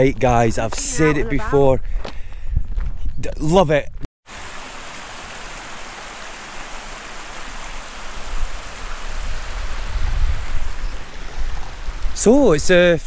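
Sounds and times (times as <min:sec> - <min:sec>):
stream running: 0:04.2 - 0:13.0.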